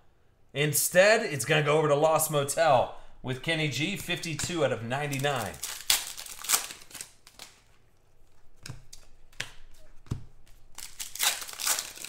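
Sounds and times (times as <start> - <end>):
card edges clicking: 3.8 - 7.6.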